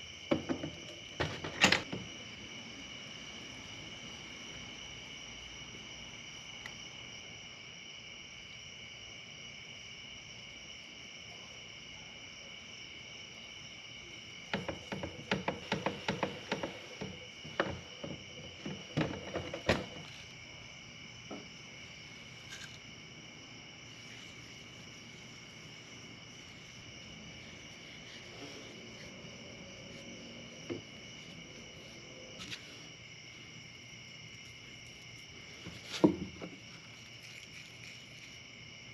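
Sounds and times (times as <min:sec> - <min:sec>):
night insects chirring: 0:00.0 - 0:38.9.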